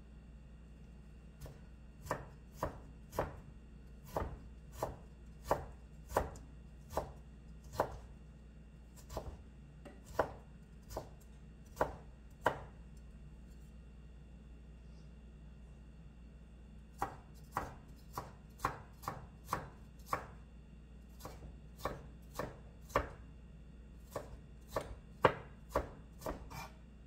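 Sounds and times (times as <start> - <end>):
knife chopping on wooden board: 1.4 - 8.1, 9.0 - 12.8, 17.0 - 20.4, 21.2 - 23.2, 24.0 - 26.8.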